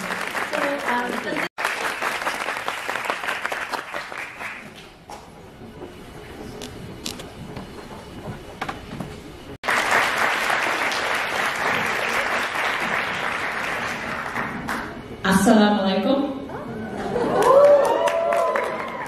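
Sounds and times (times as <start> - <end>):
audience applauding: 0.0 - 4.8, 9.6 - 15.0, 17.0 - 19.0.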